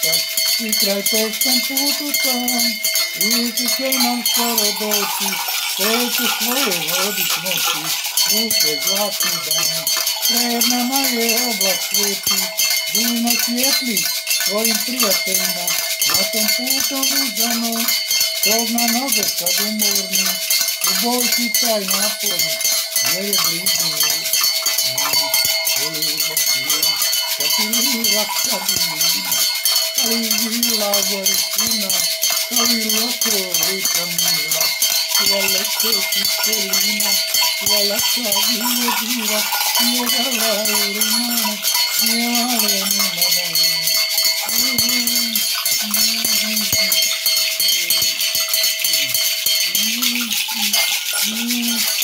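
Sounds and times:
gourd rattles shaken: 0.0 - 52.0
low voice chanting: 0.0 - 52.0
metal bells ringing: 0.0 - 52.0
person singing long notes: 30.0 - 47.0, 49.8 - 52.0.

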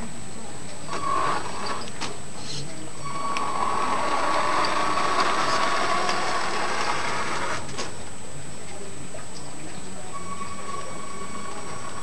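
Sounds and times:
toy truck electric motor whining: 0.9 - 2.0, 3.0 - 7.6.

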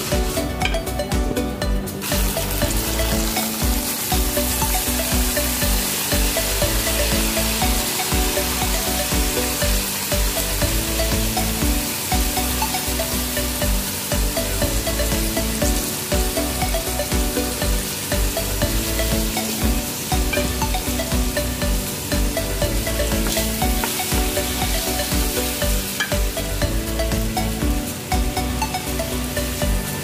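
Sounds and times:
sizzle of frying in oil: 0.0 - 30.0.

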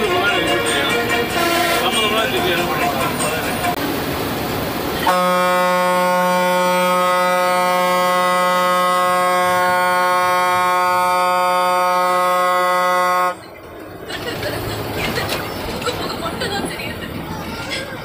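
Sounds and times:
bus horn blast: 0.0 - 2.3, 5.0 - 13.5
engine and road noise: 0.0 - 18.0.

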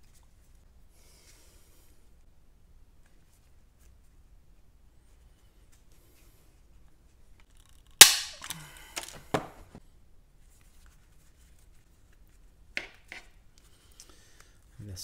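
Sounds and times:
rivet mandrel snapping: 8.0 - 9.1.

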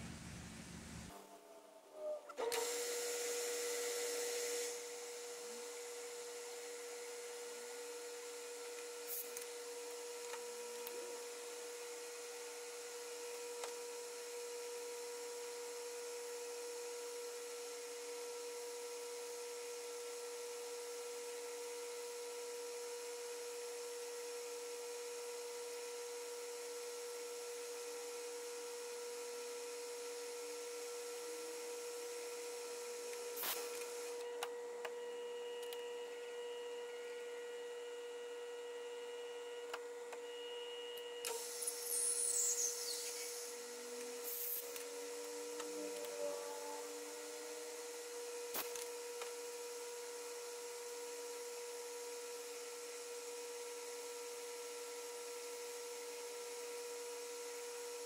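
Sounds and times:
metal lathe humming: 41.3 - 49.0.

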